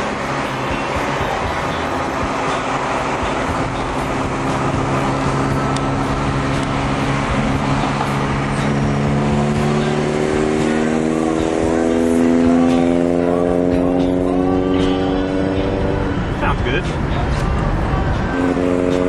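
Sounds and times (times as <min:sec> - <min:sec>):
rushing noise: 0:00.0 - 0:12.7
car engine through worn exhaust: 0:00.0 - 0:19.0.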